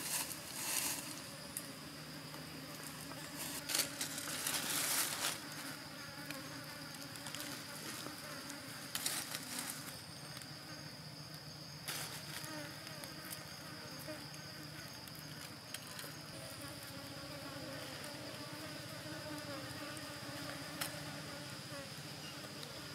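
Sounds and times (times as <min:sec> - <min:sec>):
rustling in dry leaves: 0:00.0 - 0:01.6, 0:02.8 - 0:05.8, 0:07.0 - 0:10.2, 0:11.9 - 0:13.5
insects buzzing: 0:00.0 - 0:22.9.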